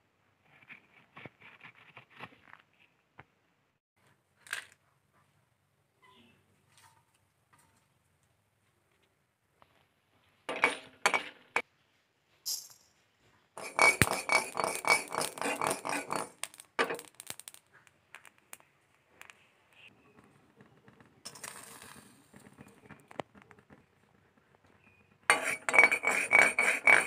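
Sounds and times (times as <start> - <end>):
sharp clinks: 12.5 - 13.0
spices rattling in an iron pan: 13.6 - 18.6, 21.0 - 23.5, 24.8 - 27.0
seeds pattering in a pan: 16.3 - 19.9, 21.3 - 23.6.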